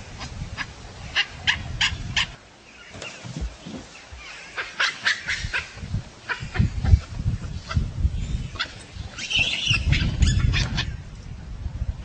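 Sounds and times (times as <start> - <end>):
baboons barking: 4.2 - 7.0.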